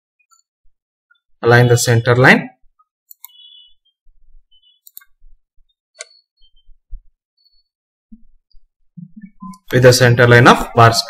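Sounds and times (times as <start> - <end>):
faint mouse clicks: 3.1 - 3.5, 4.8 - 5.1.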